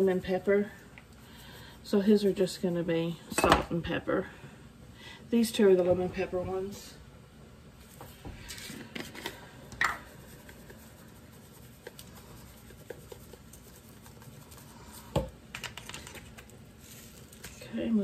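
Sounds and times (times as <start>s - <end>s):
seasoning shaker clicks and taps: 12.6s - 14.2s.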